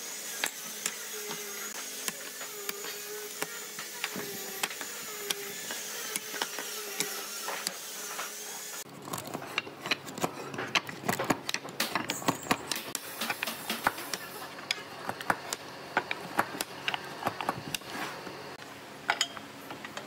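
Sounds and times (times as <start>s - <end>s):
mechanical hum with high whine: 0.0s - 20.0s
hand tool scraping wooden stick: 0.4s - 14.3s.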